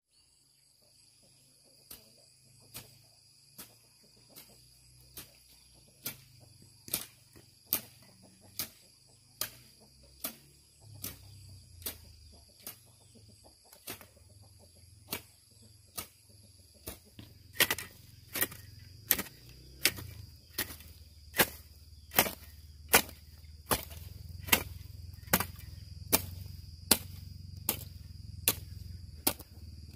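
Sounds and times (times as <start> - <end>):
crickets trilling: 0.1 - 29.9
hand tool chopping: 5.1 - 11.2, 11.8 - 12.8, 13.8 - 14.2, 15.0 - 16.2, 16.8 - 29.9.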